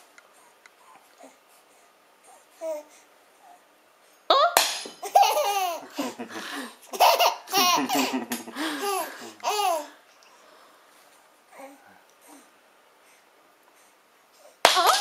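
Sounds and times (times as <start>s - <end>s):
baby laughing: 4.4s - 10.0s, 14.7s - 15.0s.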